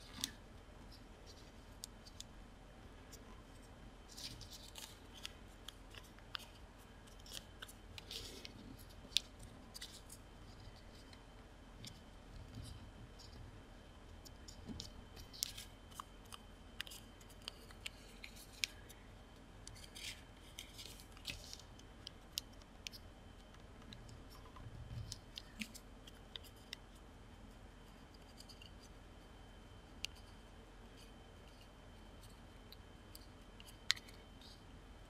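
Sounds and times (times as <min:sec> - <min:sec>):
paper crinkling and creasing: 0:03.1 - 0:11.2.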